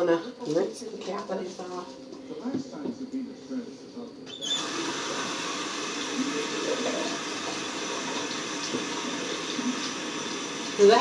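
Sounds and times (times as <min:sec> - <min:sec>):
faucet running into sink: 0:04.3 - 0:11.0.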